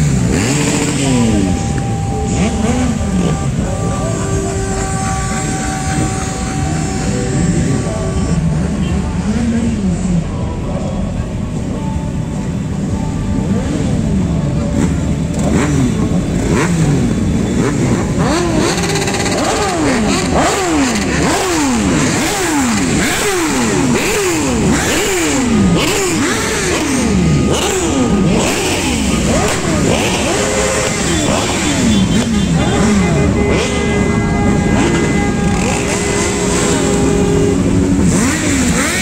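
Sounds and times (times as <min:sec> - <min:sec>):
motorcycle engines revving: 0:00.0 - 0:39.0
motorcycles riding by: 0:00.0 - 0:39.0.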